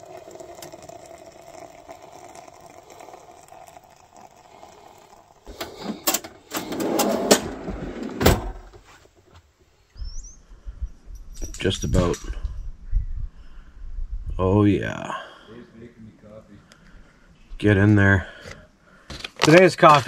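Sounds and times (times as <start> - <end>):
hot water pouring into a pot: 0.0 - 6.1
drawer clattering and sliding shut: 5.6 - 8.8
drawer knocking shut: 6.6 - 8.8.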